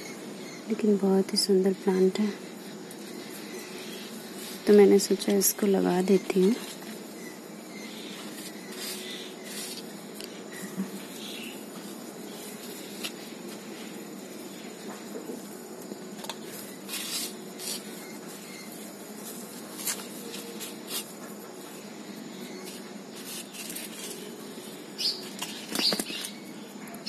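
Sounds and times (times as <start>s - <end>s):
low background hum: 0.0s - 27.0s
hands rustling soil: 8.0s - 15.6s, 16.3s - 26.3s
bird chirps: 25.0s - 27.0s.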